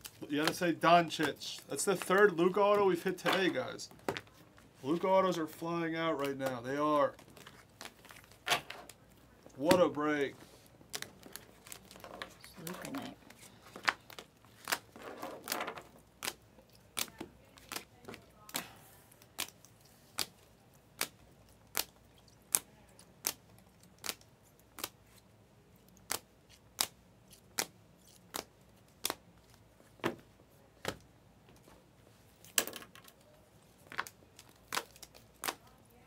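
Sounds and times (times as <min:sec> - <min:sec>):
card rustling: 0:00.1 - 0:16.4.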